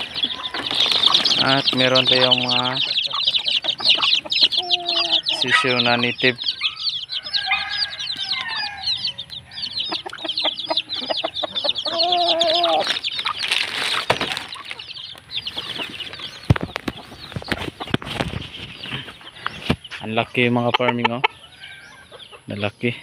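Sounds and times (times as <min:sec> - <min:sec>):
chicken calling: 0:00.0 - 0:22.7
chicks peeping: 0:00.0 - 0:23.0
rustling: 0:12.7 - 0:14.8.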